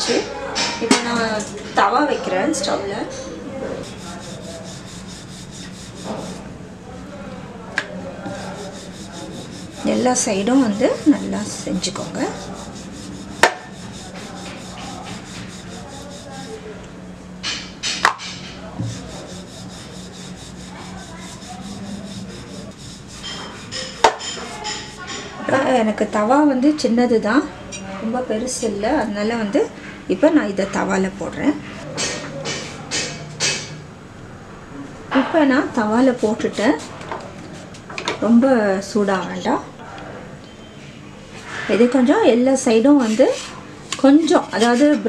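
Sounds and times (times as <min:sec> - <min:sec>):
rolling pin rubbing over dough: 0:03.6 - 0:07.2, 0:08.1 - 0:16.7, 0:18.6 - 0:25.3, 0:35.8 - 0:36.9, 0:43.0 - 0:45.0.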